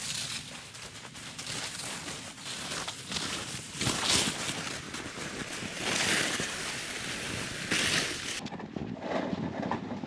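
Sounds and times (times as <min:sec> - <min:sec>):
boots crunching through snow: 0:00.0 - 0:08.4.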